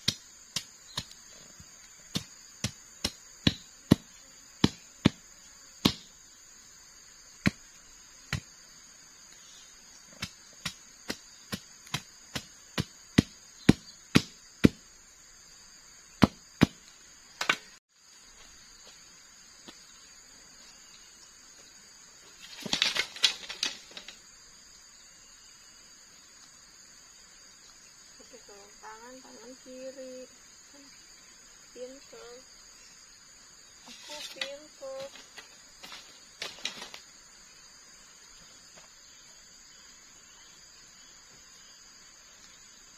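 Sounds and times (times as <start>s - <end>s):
high insect drone: 0.0s - 42.9s
machete chopping into wood: 5.8s - 6.1s, 10.2s - 14.8s, 16.2s - 16.8s, 17.4s - 17.7s.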